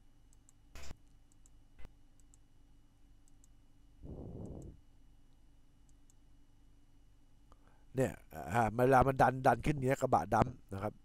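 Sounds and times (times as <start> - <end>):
computer mouse clicks: 0.3 - 0.6, 1.3 - 1.6, 2.2 - 2.4, 3.2 - 3.6, 4.4 - 4.8.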